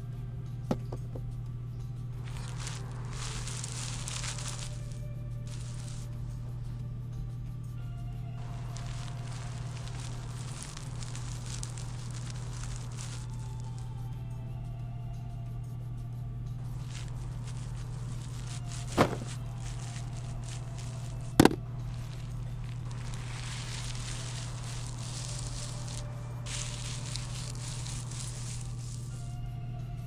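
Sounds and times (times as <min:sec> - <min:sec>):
low hum: 0:00.0 - 0:30.0
plastic bag crinkling: 0:02.2 - 0:06.2, 0:08.4 - 0:14.0, 0:16.7 - 0:29.4
plastic parts knocking on table: 0:21.4 - 0:21.6.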